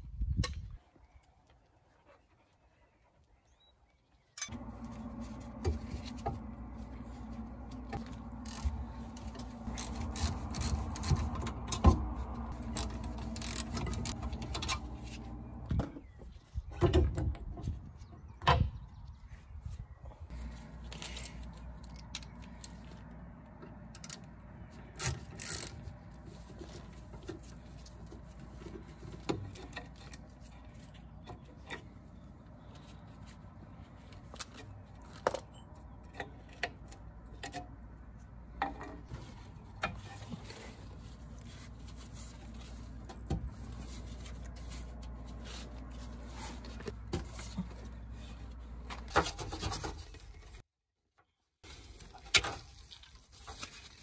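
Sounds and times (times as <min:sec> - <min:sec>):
steady low hum: 0:04.5 - 0:15.8.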